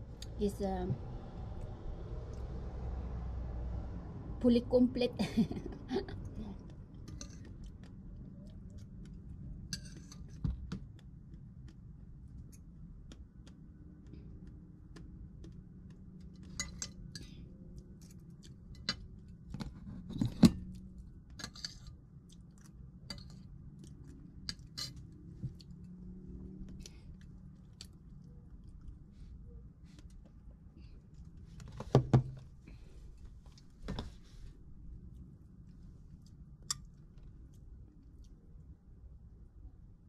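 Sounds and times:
low background rumble: 0.0 - 40.0
chewing: 6.6 - 10.4, 20.6 - 29.1.

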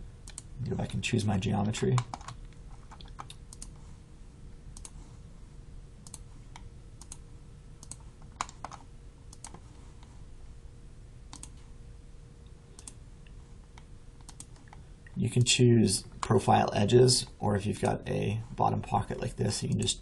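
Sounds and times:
faint hum: 0.0 - 20.0
computer mouse clicking: 0.2 - 0.5, 2.0 - 3.8, 4.7 - 5.0, 6.0 - 7.2, 7.8 - 10.1, 11.3 - 11.6, 12.8 - 14.8.

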